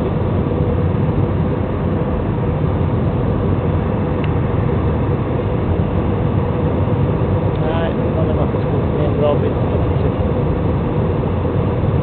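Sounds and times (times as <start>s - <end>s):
jet engines and rushing air: 0.0s - 12.0s.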